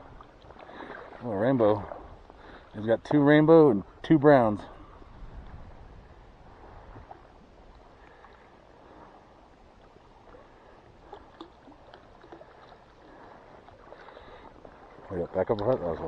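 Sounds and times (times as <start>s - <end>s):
small ticks and splashes: 0.0s - 1.2s, 9.8s - 16.0s
shallow water splashing and lapping: 0.0s - 16.0s.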